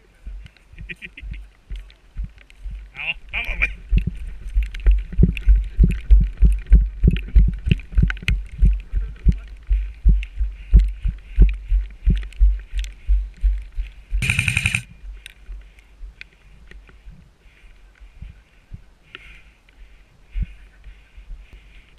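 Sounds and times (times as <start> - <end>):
running footsteps on wet dirt: 0.0 - 19.4
loud buzzing burst: 14.2 - 14.9.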